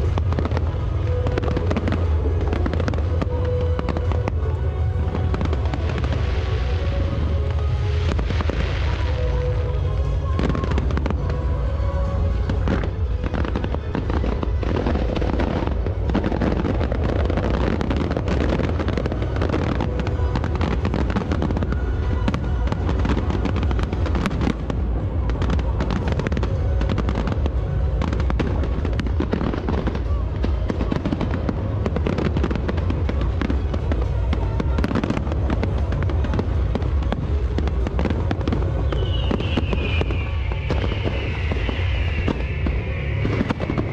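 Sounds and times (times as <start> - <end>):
deep rumble: 0.0 - 43.9
fireworks bursting and crackling: 0.0 - 43.9.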